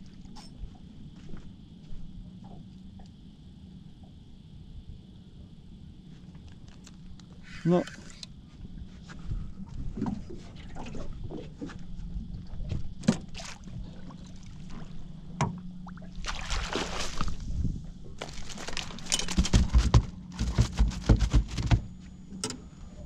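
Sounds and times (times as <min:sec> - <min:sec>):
water splashing and dripping: 0:15.8 - 0:17.4
knocks on boat hull: 0:19.4 - 0:21.9.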